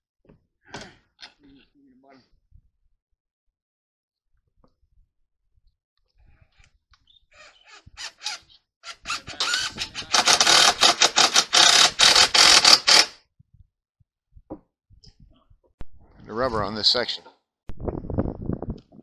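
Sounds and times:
power driver rattling: 8.0s - 13.1s.

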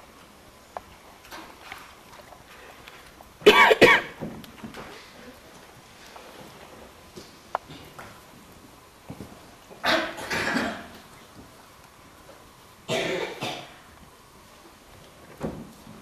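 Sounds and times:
man coughing hard: 3.4s - 4.2s, 9.8s - 10.9s, 12.9s - 13.7s.

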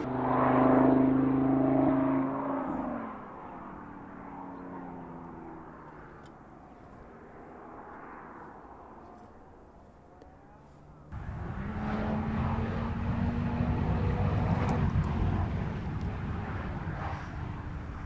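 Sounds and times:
car engine pulling away: 0.0s - 18.0s.

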